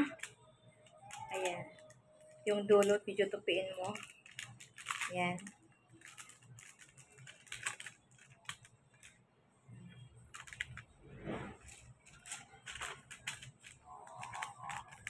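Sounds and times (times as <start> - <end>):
foil paper crinkling: 3.7 - 9.1, 11.6 - 15.0.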